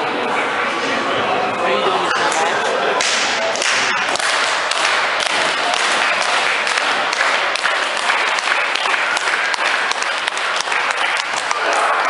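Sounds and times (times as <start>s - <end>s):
scattered voices: 0.0s - 12.0s
crowd clapping: 3.0s - 12.0s.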